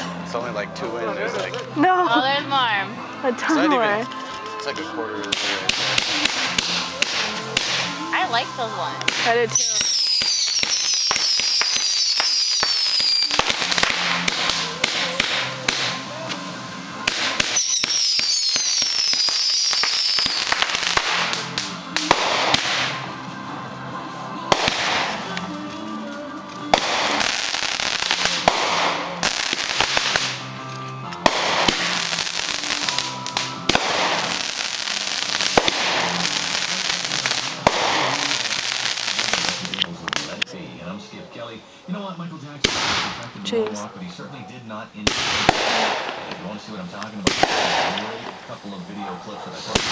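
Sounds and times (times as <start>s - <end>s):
fireworks bangs and crackling: 3.4s - 23.5s, 24.4s - 40.4s, 42.6s - 43.9s, 45.0s - 49.9s
fireworks whistling: 5.2s - 23.2s, 24.5s - 25.4s, 26.7s - 30.6s, 31.2s - 40.4s, 45.0s - 49.0s, 49.7s - 49.9s.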